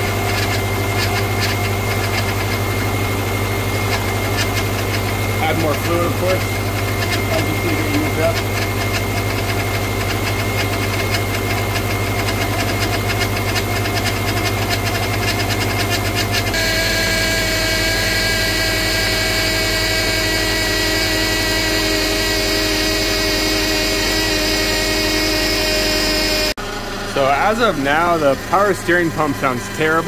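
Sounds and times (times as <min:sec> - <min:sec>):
power steering pump buzz: 0:00.0 - 0:30.0
car engine idling: 0:19.0 - 0:30.0.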